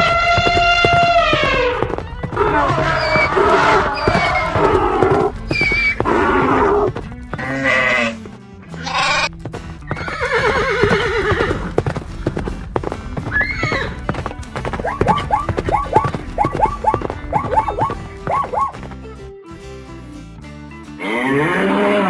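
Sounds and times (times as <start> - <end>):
horse whinnying: 0.0 - 11.8, 13.3 - 14.1, 14.8 - 18.8, 21.0 - 22.0
donkey braying: 0.0 - 18.8, 21.0 - 22.0
background music: 0.0 - 22.0.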